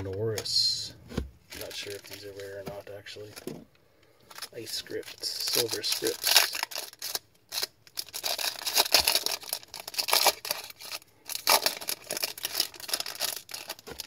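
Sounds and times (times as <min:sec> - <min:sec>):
foil wrapper crinkling and tearing: 0:01.6 - 0:02.6, 0:04.3 - 0:14.0.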